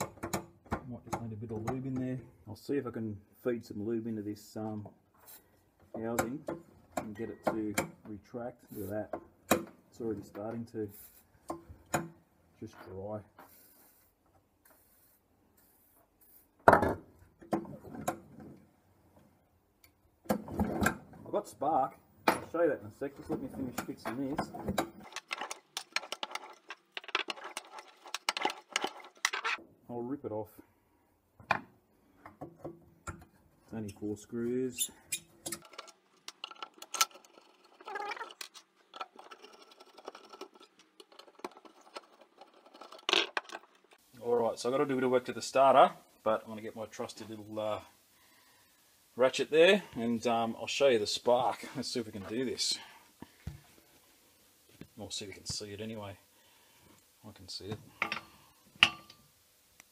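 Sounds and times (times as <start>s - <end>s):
screwdriver metal clicks and scrapes: 35.1s - 44.0s.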